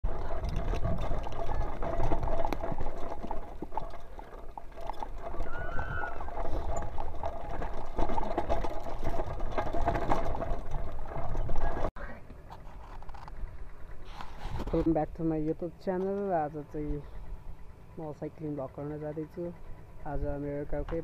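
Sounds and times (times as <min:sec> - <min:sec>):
mountain bike rattling over dirt: 0:00.0 - 0:11.9, 0:12.6 - 0:21.0
wind rumbling on microphone: 0:00.0 - 0:11.9.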